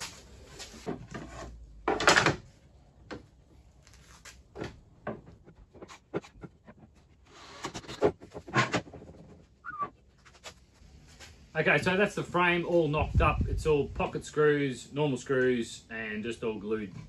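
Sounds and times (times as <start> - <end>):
wood and tools clattering: 0.0 - 3.3, 3.9 - 9.6.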